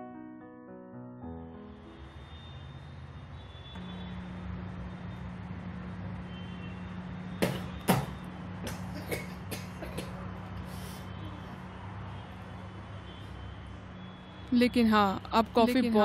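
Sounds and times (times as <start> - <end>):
man coughing and spluttering: 8.8 - 10.2.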